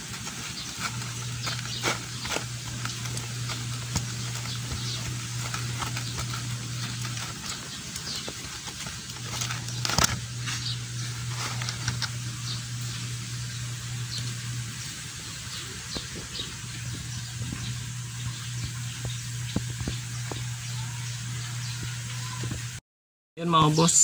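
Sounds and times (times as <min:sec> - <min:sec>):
drain plug clicks and scrapes: 0:00.0 - 0:12.3
low hum: 0:00.0 - 0:22.8.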